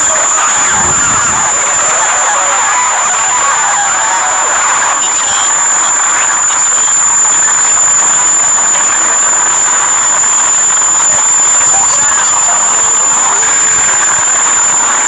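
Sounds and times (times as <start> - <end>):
high-pitched whine: 0.0 - 2.2.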